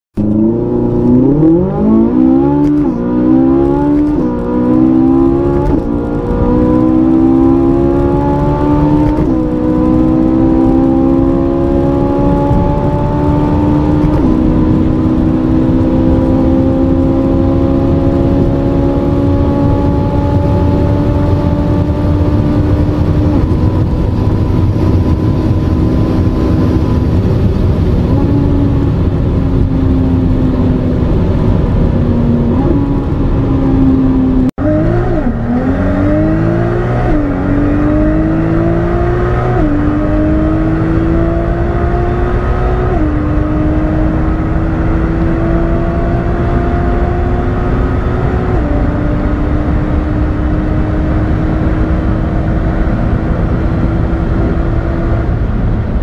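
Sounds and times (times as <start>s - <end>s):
car engine accelerating through gears: 0.2s - 56.0s.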